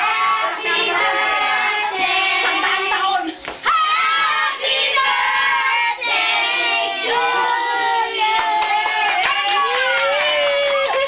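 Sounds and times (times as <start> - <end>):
group singing: 0.0 - 9.2
hand clapping: 8.4 - 11.0.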